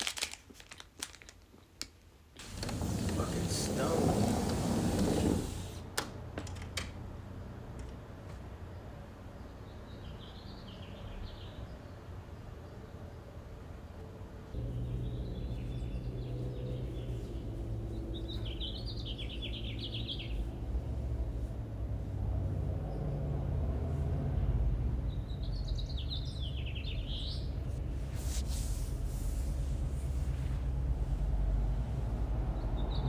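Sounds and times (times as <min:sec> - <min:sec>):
birds chirping: 0:14.6 - 0:20.5, 0:25.1 - 0:27.7
steady low rumble: 0:14.6 - 0:25.6.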